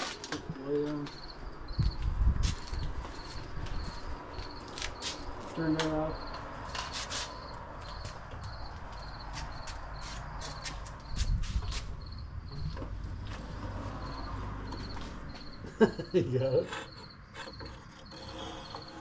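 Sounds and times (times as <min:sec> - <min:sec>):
crickets chirping: 0:00.0 - 0:19.0.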